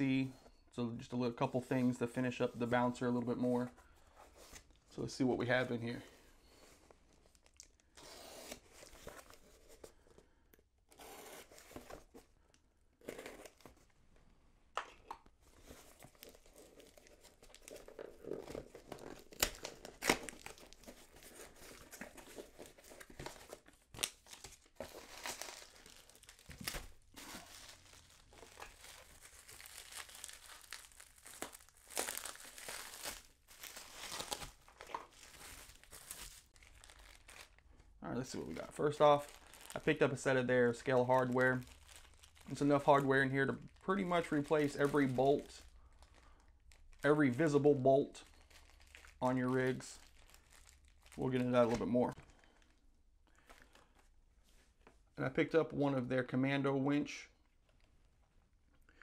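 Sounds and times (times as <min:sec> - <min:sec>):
bubble wrap crinkling: 0:15.4 - 0:47.6, 0:48.2 - 0:52.8
packing tape tearing: 0:16.2 - 0:21.0.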